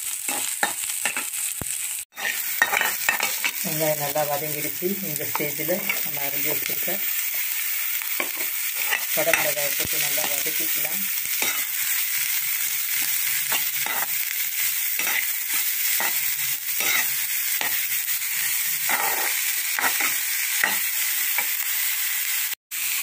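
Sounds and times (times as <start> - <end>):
vegetables sizzling in oil: 0.0 - 23.0
metal spatula scraping pan: 2.2 - 3.6, 13.0 - 14.2, 15.0 - 17.8, 18.8 - 20.9.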